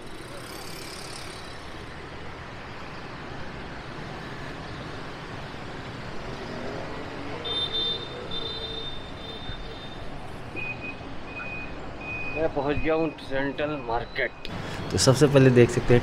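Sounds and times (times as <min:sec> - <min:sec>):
street traffic passing: 0:00.0 - 0:16.0
high-pitched beeping tone: 0:09.2 - 0:14.5.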